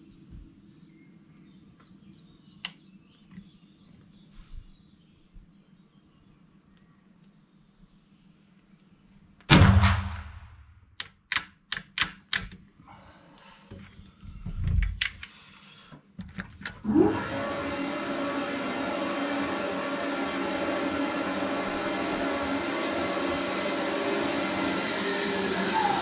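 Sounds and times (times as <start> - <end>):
rifle shot ringing: 9.5 - 10.7
sharp clicks: 11.0 - 12.6.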